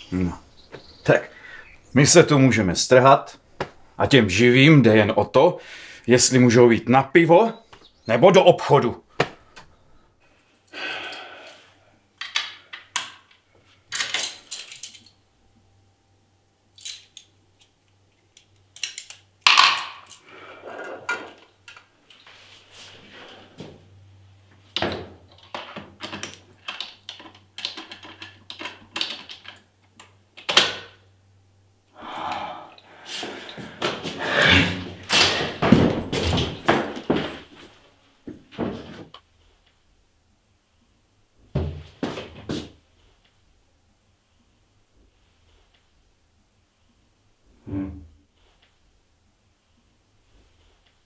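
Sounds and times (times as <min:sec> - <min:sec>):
keys jangling on tiled floor: 0:13.9 - 0:15.2, 0:16.8 - 0:17.3
handling clicks and knocks: 0:24.8 - 0:30.9.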